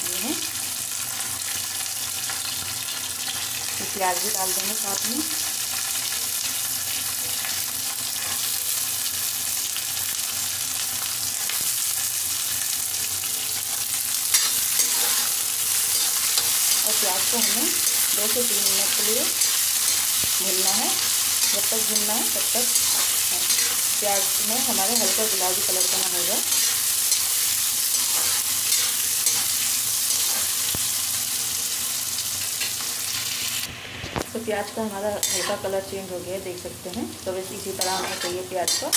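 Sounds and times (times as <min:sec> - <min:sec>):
onions sizzling in oil: 0:00.0 - 0:38.9
metal spoon stirring: 0:15.9 - 0:27.3.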